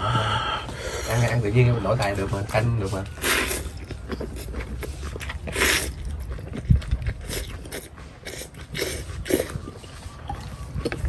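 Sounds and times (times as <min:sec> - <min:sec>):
man slurping noodles: 0:05.4 - 0:06.0, 0:07.2 - 0:09.6.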